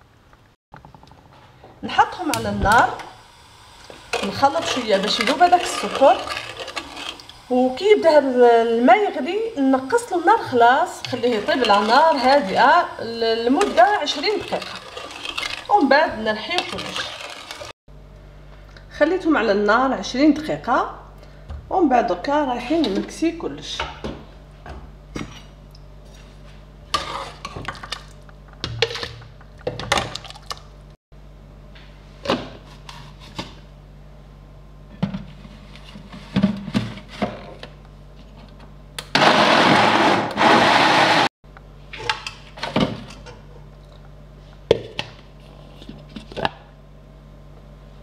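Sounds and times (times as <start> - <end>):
blender running: 2.3 - 17.7, 39.1 - 41.3.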